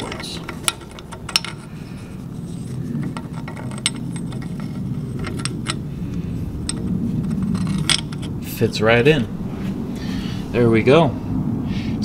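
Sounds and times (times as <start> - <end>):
metal clicks: 0.0 - 1.7, 2.7 - 5.9, 6.6 - 8.3
steady low hum: 0.0 - 12.0.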